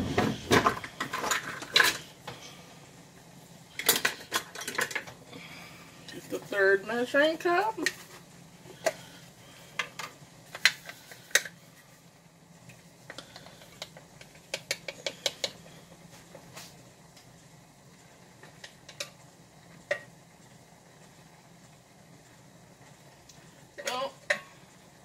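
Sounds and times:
kitchen utensils clattering: 0.0 - 2.1, 3.8 - 5.2.

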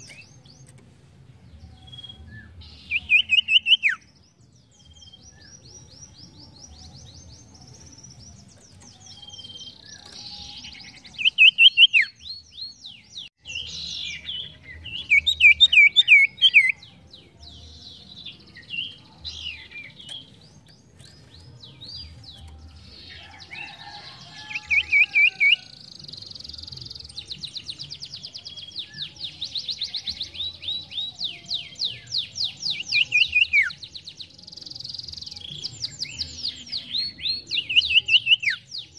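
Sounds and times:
songbird chirping and trilling: 0.0 - 38.9.

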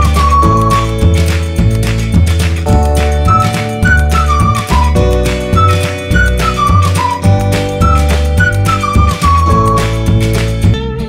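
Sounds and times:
bass line: 0.0 - 11.0
single-line melody: 2.6 - 10.2.

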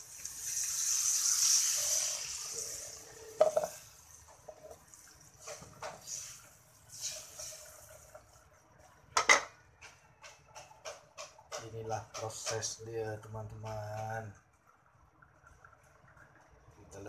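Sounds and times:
water hissing in a hot wok: 0.0 - 4.3, 5.0 - 8.4
knock: 3.4 - 3.7.

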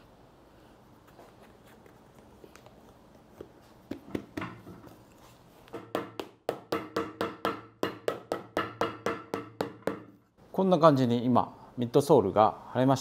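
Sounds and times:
hammer tapping rubber sole: 5.7 - 10.2.

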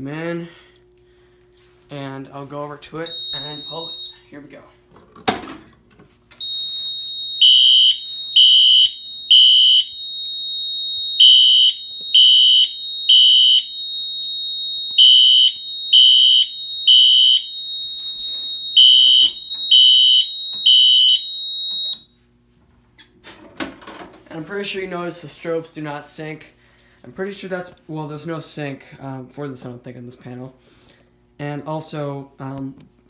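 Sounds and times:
continuous high alarm tone: 0.5 - 4.7, 6.3 - 22.2
fire alarm horn beeps: 3.0 - 4.4, 6.4 - 22.2.

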